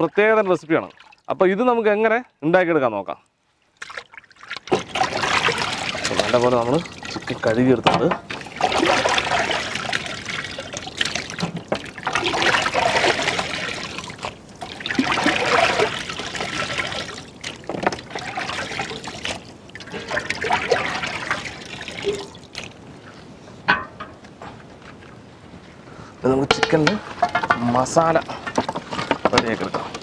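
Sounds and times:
water sloshing and splashing: 0.0 - 1.6, 3.4 - 24.1, 26.5 - 30.0.

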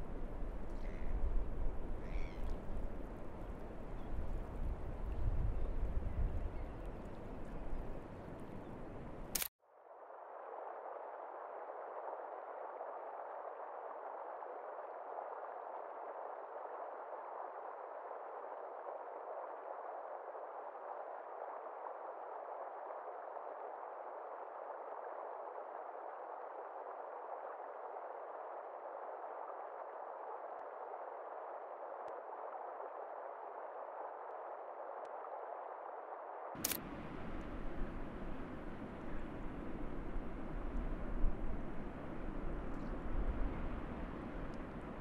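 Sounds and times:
faint low hum: 0.0 - 45.0
outdoor ambience: 0.0 - 45.0
muffled rushing noise: 36.6 - 45.0.

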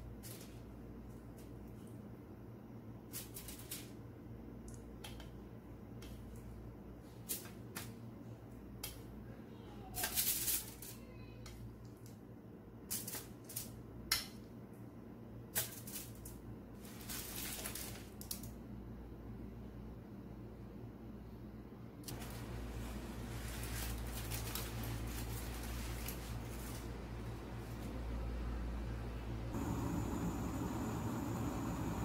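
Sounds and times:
aluminium foil crinkling: 3.2 - 3.9, 10.0 - 11.0, 15.6 - 18.5, 22.1 - 27.9
low steady hum: 18.4 - 32.0.

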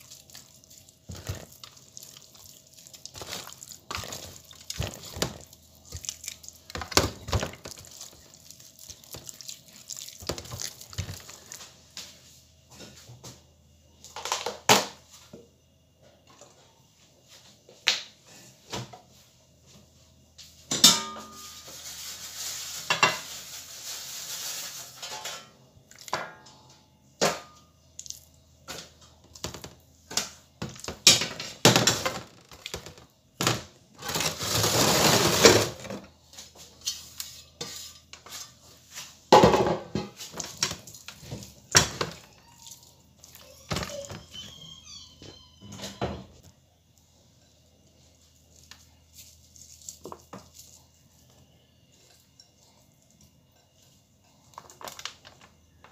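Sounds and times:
scraping and rustling: 0.0 - 6.1, 21.4 - 25.4, 34.0 - 39.2
metal tray and dishes clinking: 20.7 - 21.7.

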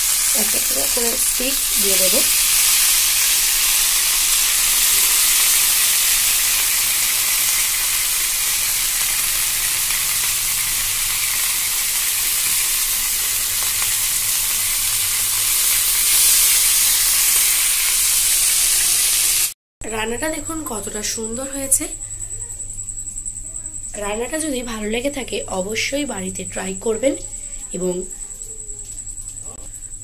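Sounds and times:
food sizzling in hot oil: 0.0 - 19.6.

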